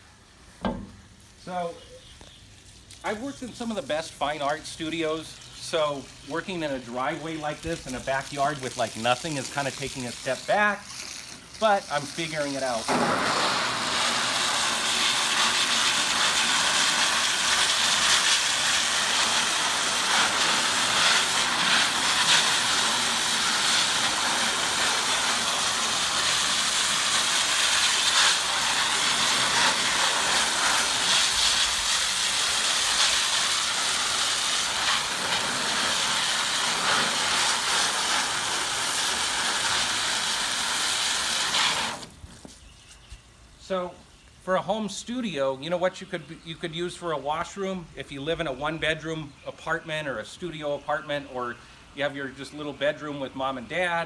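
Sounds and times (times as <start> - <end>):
hose spraying water: 0.0 - 42.6.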